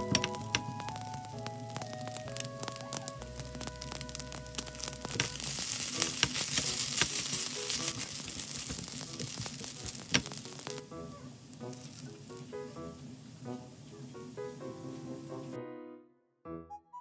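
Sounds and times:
fried rice sizzling in a pan: 0:00.0 - 0:12.6.

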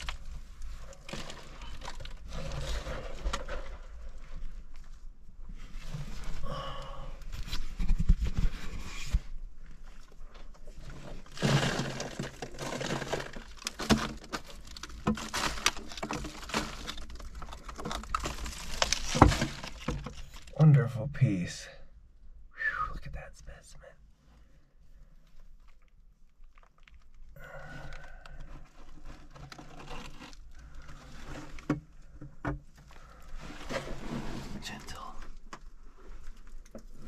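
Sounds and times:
gritty scraping of rock: 0:00.0 - 0:06.6, 0:07.3 - 0:21.3, 0:24.4 - 0:37.0
clicks of small stones: 0:11.2 - 0:20.6, 0:25.2 - 0:31.7.

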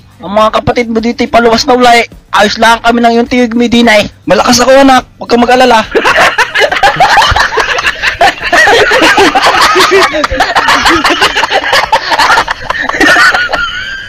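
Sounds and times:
canned laughter: 0:05.9 - 0:14.0.

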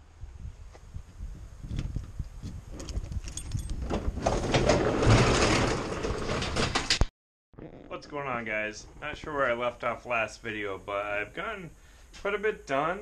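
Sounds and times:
garage door rollers rattling: 0:03.7 - 0:07.0.

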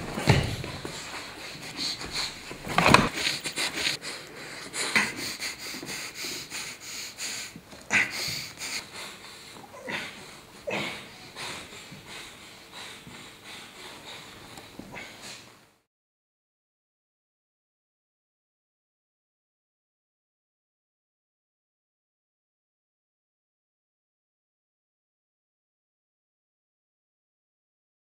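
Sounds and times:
person sniffing and breathing hard: 0:00.3 - 0:15.6.

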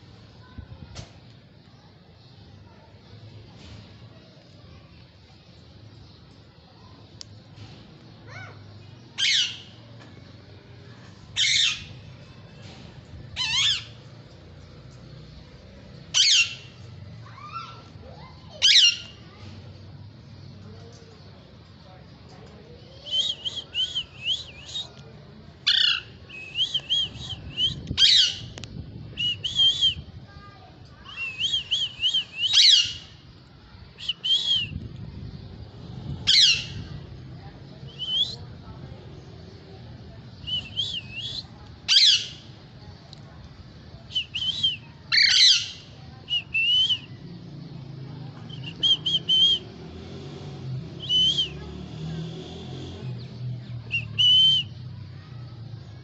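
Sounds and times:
parakeets chirping: 0:09.2 - 0:09.6, 0:11.4 - 0:11.9, 0:16.1 - 0:16.8, 0:32.3 - 0:33.1, 0:36.0 - 0:36.8, 0:45.1 - 0:45.7.

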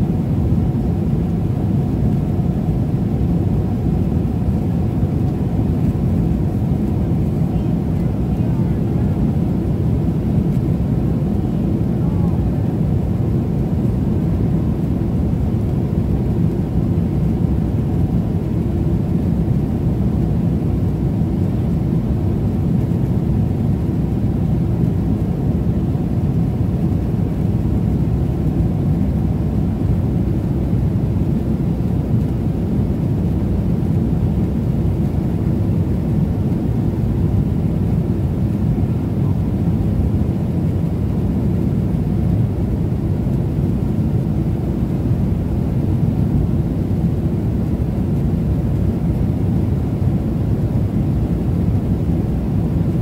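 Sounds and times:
airliner cabin engine rumble: 0:00.0 - 0:53.0.

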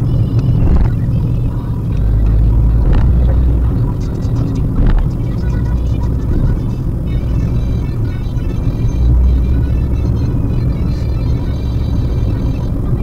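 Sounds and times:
car engine and road noise: 0:00.0 - 0:13.0
road knocks: 0:02.0 - 0:03.6, 0:04.7 - 0:05.2.

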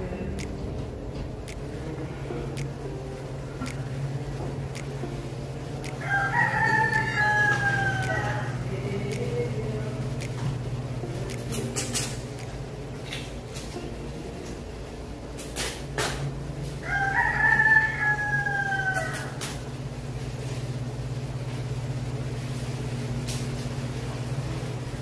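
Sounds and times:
steady low hum: 0:00.0 - 0:25.0
rooster crowing: 0:05.9 - 0:08.9, 0:16.8 - 0:19.7.

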